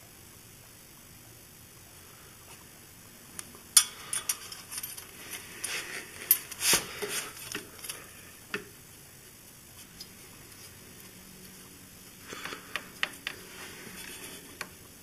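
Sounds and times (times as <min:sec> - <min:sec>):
metal clinks and scraping: 0:03.8 - 0:08.0.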